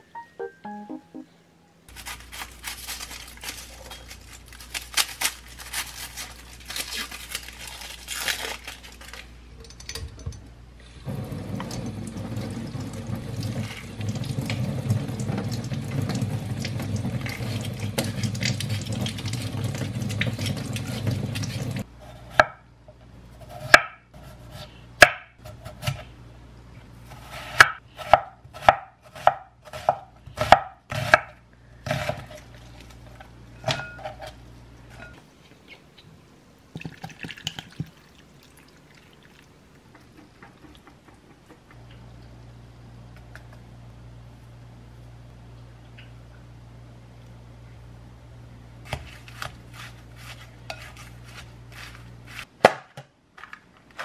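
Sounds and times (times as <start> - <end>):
onion skin rustling: 1.9 - 9.3, 48.8 - 52.5
tap water running: 11.1 - 21.8
knife cutting onion: 23.4 - 26.1, 27.1 - 32.5, 48.9 - 52.8.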